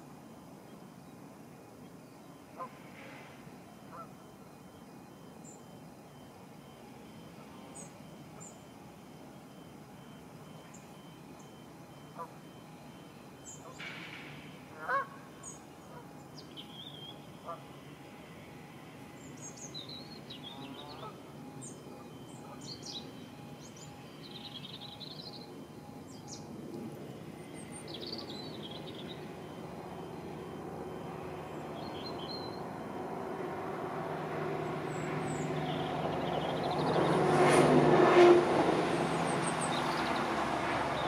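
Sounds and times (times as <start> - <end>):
diesel train approaching: 0.0 - 41.0
birds chirping: 19.1 - 32.8, 34.5 - 37.2.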